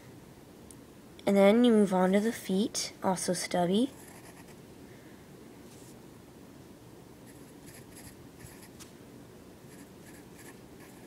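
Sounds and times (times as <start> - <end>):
pencil scratching on paper: 3.9 - 4.6, 7.3 - 8.8, 9.7 - 11.0.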